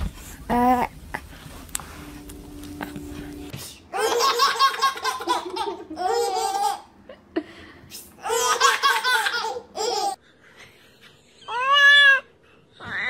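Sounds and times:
baby laughing: 3.9 - 6.9, 8.2 - 10.2.

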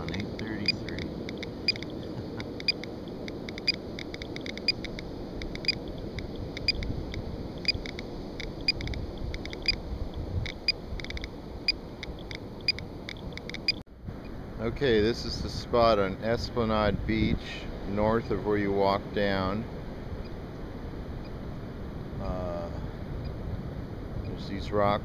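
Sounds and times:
geiger counter clicking: 0.0 - 9.8, 10.4 - 13.8
low steady rumble: 0.0 - 25.0.

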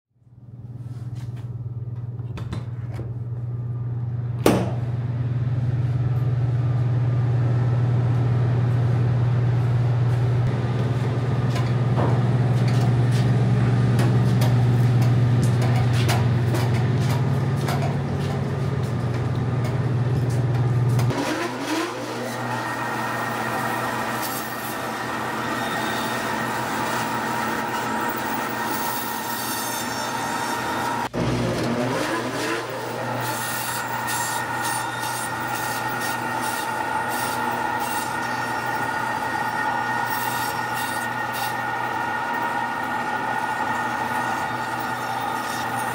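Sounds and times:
low machine hum: 0.2 - 21.1
band saw cutting meat: 21.1 - 45.9.

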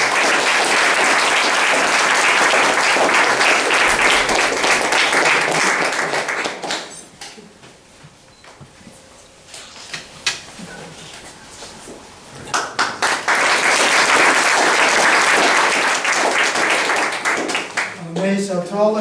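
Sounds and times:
audience applauding: 0.0 - 7.1, 12.5 - 18.0.

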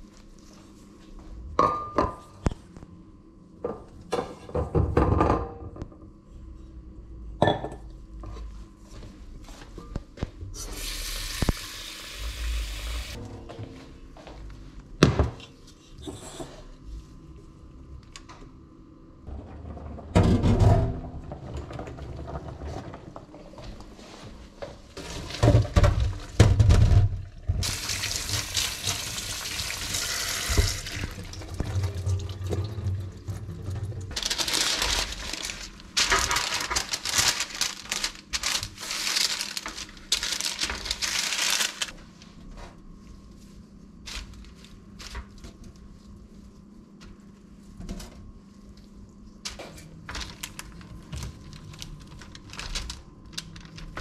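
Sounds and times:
tap water running into sink: 27.6 - 34.0.

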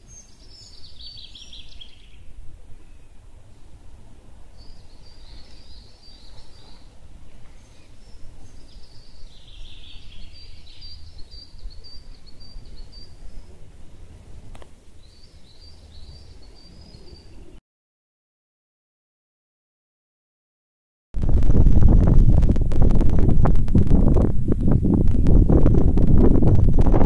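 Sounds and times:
low wind rumble on microphone: 0.0 - 17.6, 21.2 - 27.0
songbirds singing: 0.0 - 17.6.

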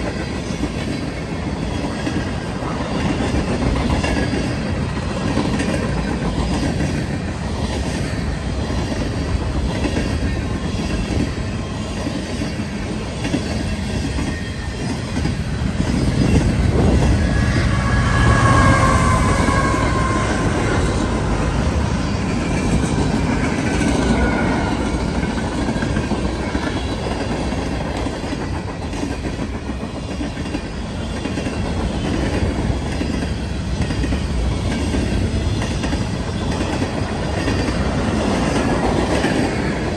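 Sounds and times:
diesel locomotive passing: 0.0 - 39.9
freight train wheels clattering: 0.0 - 39.9
high wheel squeals: 16.2 - 22.9.

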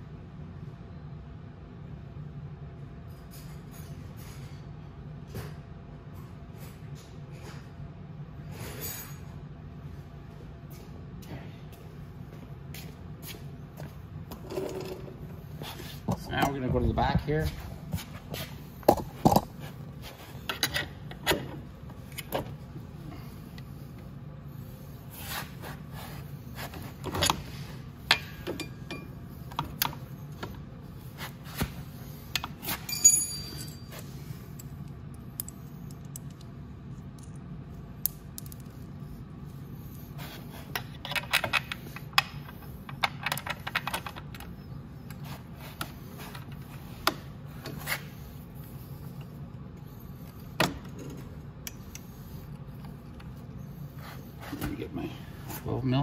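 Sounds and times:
metal tools clinking and rattling: 32.7 - 34.1
ringing metallic clink: 32.9 - 33.9.

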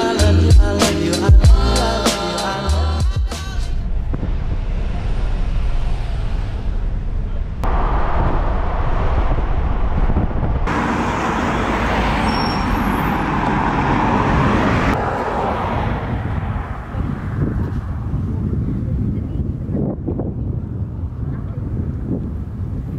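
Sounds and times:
low cabin rumble: 3.4 - 10.8
tyre and wind roar: 3.6 - 22.9.

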